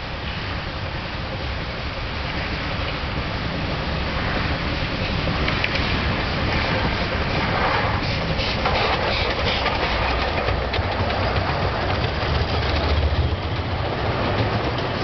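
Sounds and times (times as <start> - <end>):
miniature steam train rumbling past: 0.0 - 15.0
wheels clicking over rails: 0.3 - 15.0.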